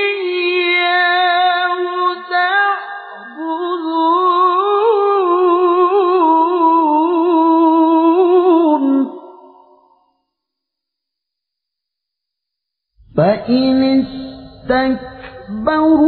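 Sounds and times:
man reciting melodically: 0:13.1 - 0:16.0.

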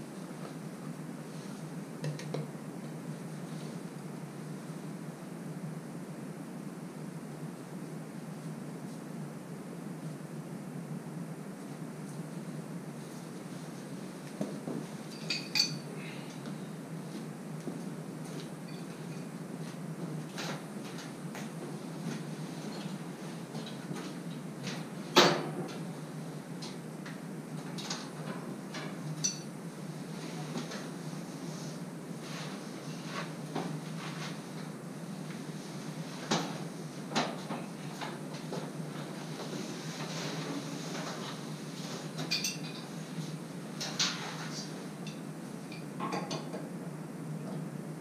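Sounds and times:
steady low hum: 0:00.0 - 0:48.0
knocks and clinks of handling: 0:15.1 - 0:15.8, 0:42.3 - 0:42.8.

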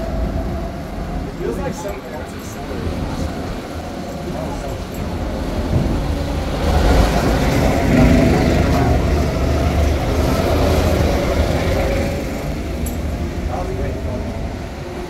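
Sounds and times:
go-kart motor passing: 0:06.1 - 0:13.4.

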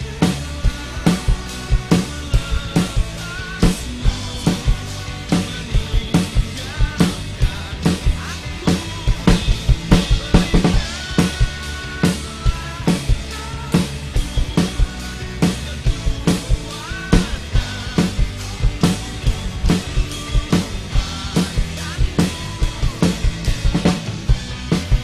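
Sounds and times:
acoustic drum kit groove: 0:00.0 - 0:25.0
pop-rock backing track: 0:00.0 - 0:25.0.

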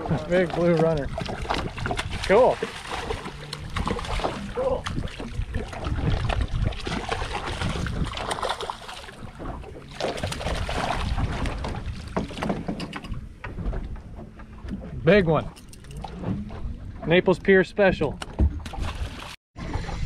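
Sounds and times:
water splashing beside boat: 0:00.0 - 0:20.0
fish thrashing at surface: 0:00.1 - 0:12.5
wind on microphone: 0:00.9 - 0:08.5, 0:09.2 - 0:14.0.

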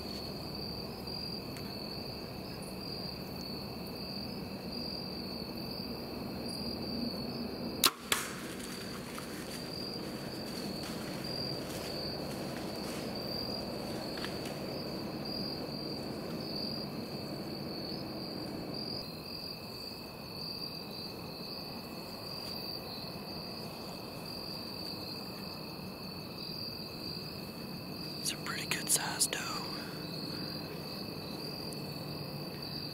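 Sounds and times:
crickets chirring: 0:00.0 - 0:32.9
arrow impact: 0:07.8 - 0:08.7
bowstring crack: 0:07.8 - 0:09.6.

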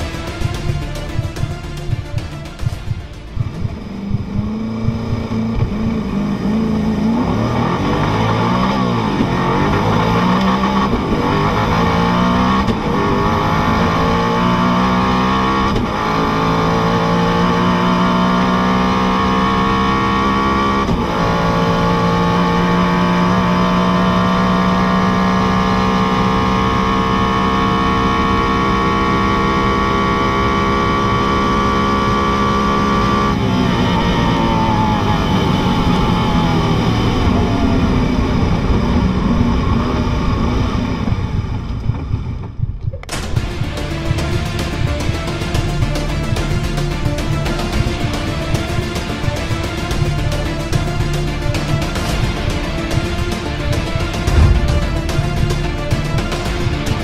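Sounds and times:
gear upshifts: 0:00.0 - 0:27.2
car engine at full throttle: 0:00.0 - 0:57.0.

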